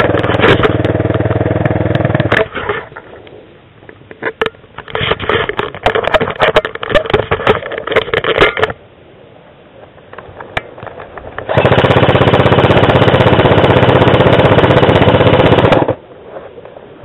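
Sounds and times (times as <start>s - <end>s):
airsoft rifle full-auto burst: 11.5s - 16.0s.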